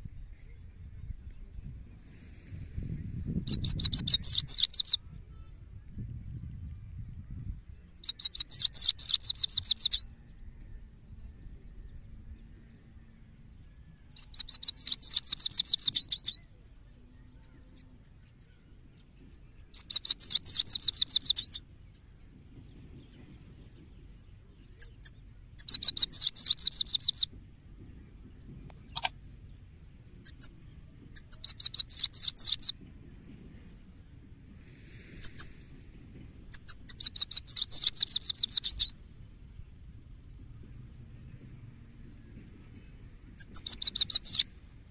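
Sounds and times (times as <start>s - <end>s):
goldfinch twittering: 3.5s - 5.0s, 14.2s - 16.3s, 19.8s - 21.6s, 24.8s - 27.2s, 31.2s - 32.7s, 36.5s - 38.9s, 43.4s - 44.4s.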